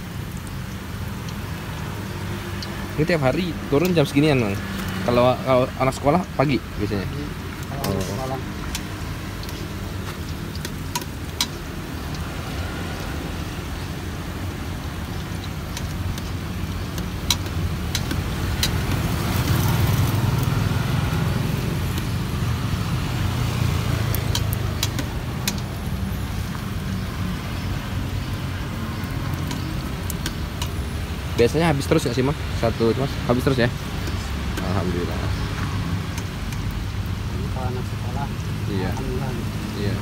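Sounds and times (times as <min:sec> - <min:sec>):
food frying in oil: 0:00.0 - 0:40.0
low traffic rumble: 0:00.0 - 0:40.0
metal tongs clicking on pot: 0:07.6 - 0:09.6, 0:10.5 - 0:12.2, 0:16.9 - 0:19.0, 0:24.1 - 0:25.7, 0:29.3 - 0:30.8.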